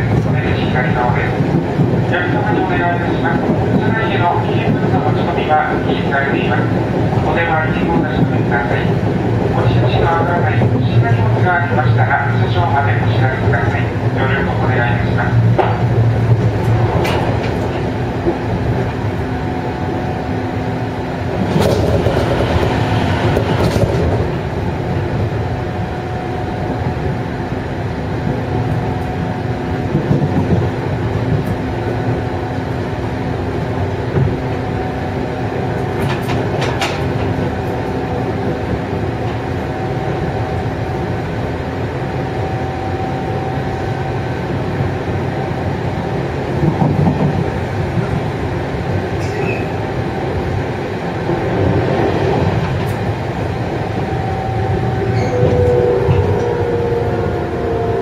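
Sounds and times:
rail-joint clacks: 0.0 - 19.0, 21.3 - 24.4, 35.7 - 39.5, 46.6 - 48.3, 49.1 - 49.8, 54.3 - 57.0
wheels rumbling on rails: 0.0 - 58.0.

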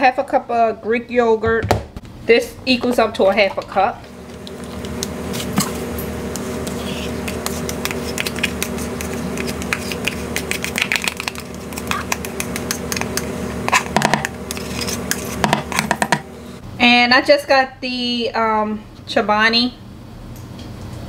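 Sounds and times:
utensil scraping a measuring cup: 4.6 - 16.1.

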